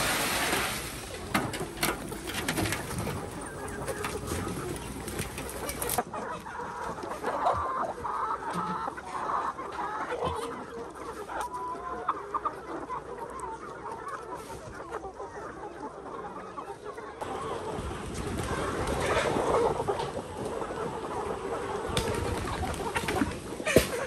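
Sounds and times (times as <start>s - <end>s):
chickens clucking: 0.0s - 24.0s.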